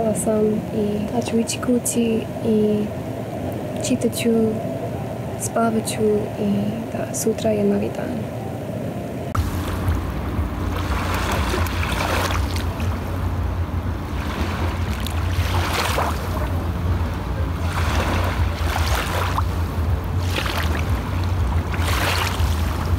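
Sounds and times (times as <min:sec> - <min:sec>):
wind rumble on microphone: 0:00.0 - 0:22.9
small waves lapping on shore: 0:09.3 - 0:22.9.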